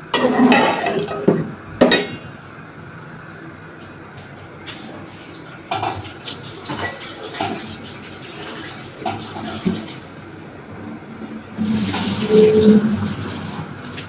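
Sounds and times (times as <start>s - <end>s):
dishes clinking: 0.2s - 2.3s, 5.7s - 6.0s, 11.8s - 13.2s
water splashing and pouring: 11.6s - 14.0s.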